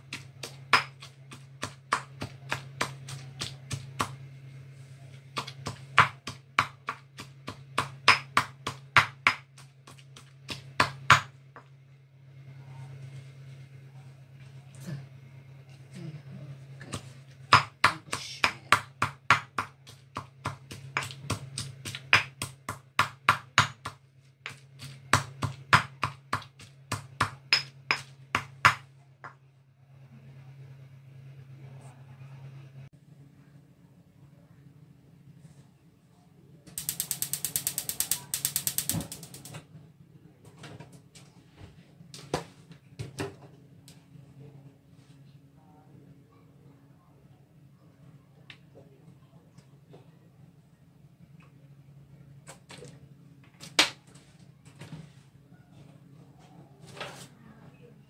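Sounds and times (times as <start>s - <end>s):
stone pestle pounding in mortar: 0.0s - 4.2s, 5.3s - 11.7s, 16.9s - 28.9s
steady low hum: 0.0s - 58.0s.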